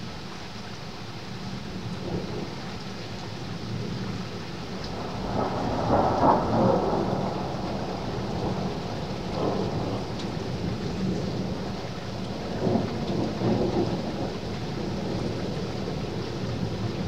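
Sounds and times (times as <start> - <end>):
thunder rumbling: 4.8 - 17.0.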